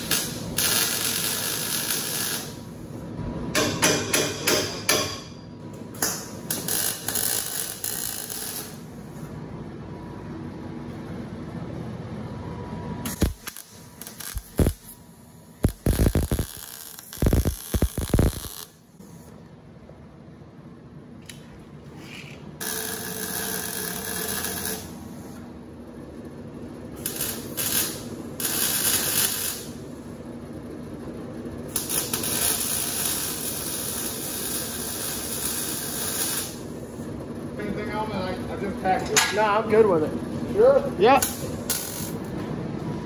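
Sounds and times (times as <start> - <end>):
welder crackling bursts: 0.0 - 2.9, 6.0 - 8.9, 13.0 - 15.0, 15.6 - 18.8, 22.6 - 25.1, 27.0 - 29.8, 31.7 - 36.8, 41.1 - 42.2
welder sizzling hissing runs: 0.0 - 3.1, 6.2 - 9.2, 13.0 - 18.8, 22.6 - 25.4, 27.0 - 30.0, 31.7 - 37.0, 40.8 - 42.2.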